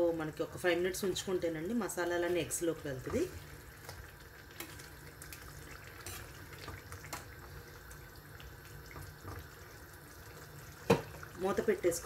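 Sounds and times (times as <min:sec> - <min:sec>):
ladle stirring thick gravy: 0:02.9 - 0:11.4.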